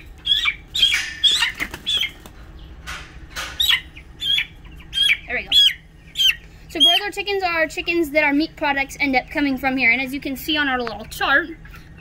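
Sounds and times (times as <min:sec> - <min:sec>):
chick peeping loudly: 0:00.0 - 0:02.8, 0:03.5 - 0:07.2
wings flapping and rustling: 0:00.1 - 0:03.8.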